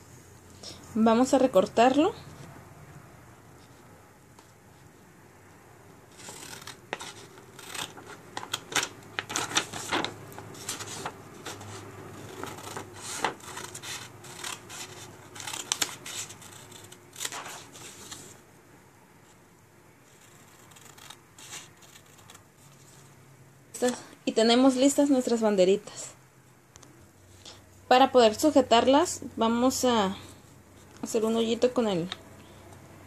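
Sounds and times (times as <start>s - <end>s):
scissors snipping paper: 6.1s - 18.2s, 20.1s - 22.4s
paper rustling: 6.2s - 18.4s.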